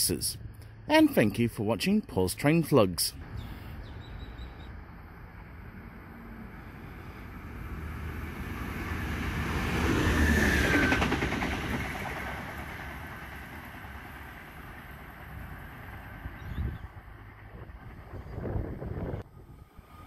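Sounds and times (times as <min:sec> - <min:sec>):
electric train passing: 0:03.2 - 0:20.0
rapid clicks of train wheels: 0:07.4 - 0:16.4.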